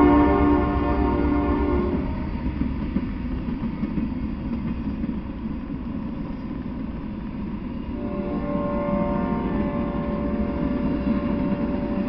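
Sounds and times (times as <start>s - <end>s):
freight cars rolling on rails: 0.0s - 12.0s.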